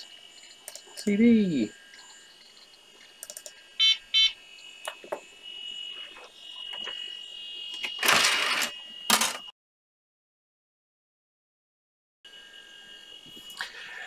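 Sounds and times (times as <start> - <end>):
steady high tone: 0.0 - 9.2
short electronic beeps: 3.8 - 4.4.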